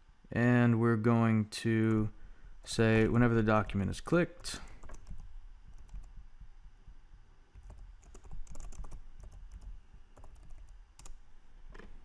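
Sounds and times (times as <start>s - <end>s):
computer keyboard typing: 4.7s - 6.2s, 7.6s - 11.2s.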